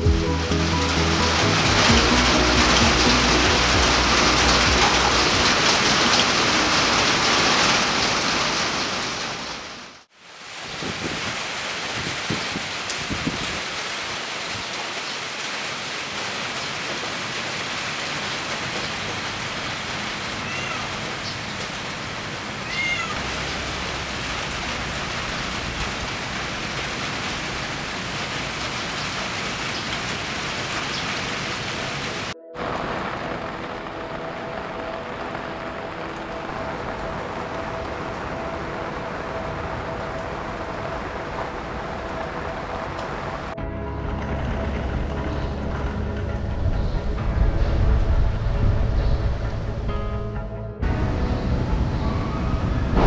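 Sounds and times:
heavy rain pouring: 0.0 - 49.8, 50.8 - 53.0.

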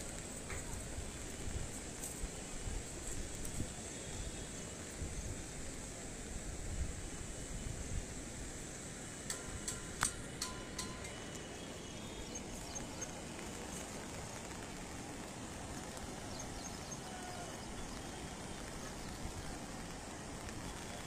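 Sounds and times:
river rushing: 9.3 - 21.0.

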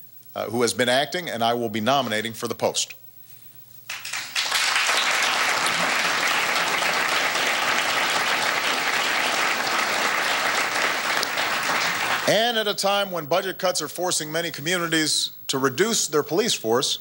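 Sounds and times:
audience applauding: 3.9 - 12.4.

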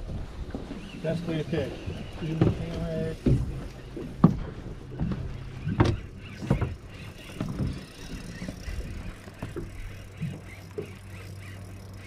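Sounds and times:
knocks and thumps on boat: 1.6 - 11.1
steady low hum: 1.8 - 12.0.

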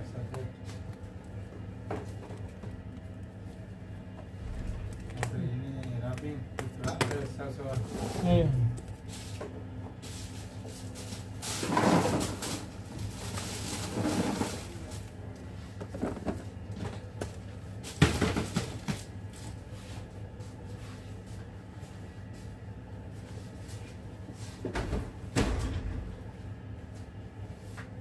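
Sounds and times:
steady low hum: 0.1 - 7.6.

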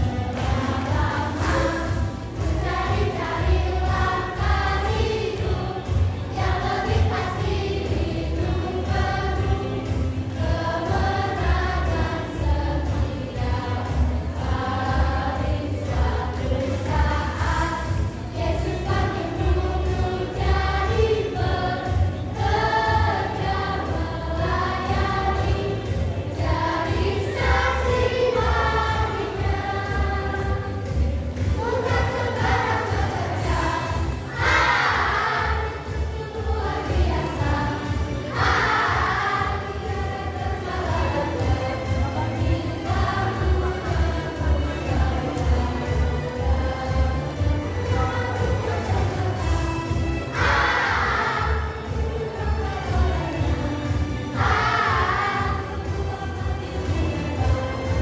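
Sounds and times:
children's choir singing: 0.0 - 58.0.

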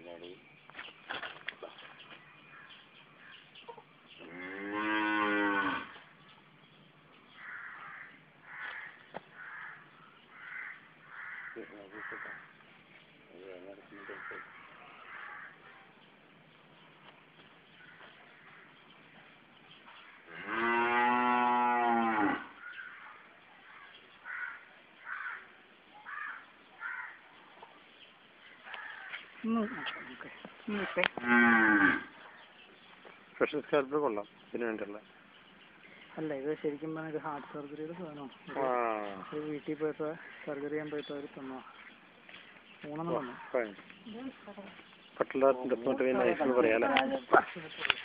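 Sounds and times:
cow mooing: 4.2 - 6.0, 20.3 - 22.6, 31.2 - 32.1.

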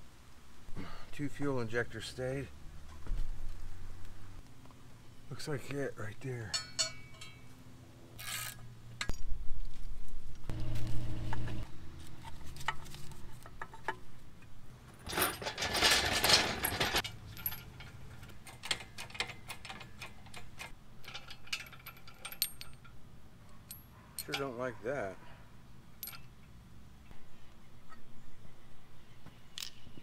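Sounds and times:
metal hardware clinking: 6.4 - 7.5, 15.0 - 23.0, 23.6 - 24.6, 26.0 - 26.5
knocks and scrapes: 14.8 - 20.8.

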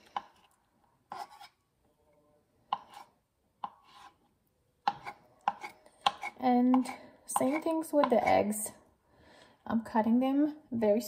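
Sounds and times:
knife slicing eggs: 1.1 - 1.6, 2.7 - 4.2, 4.9 - 8.4.

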